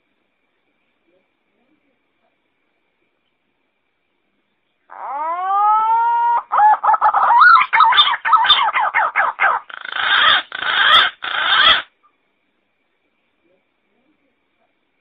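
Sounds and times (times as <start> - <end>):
pigeon singing: 4.9 - 11.9.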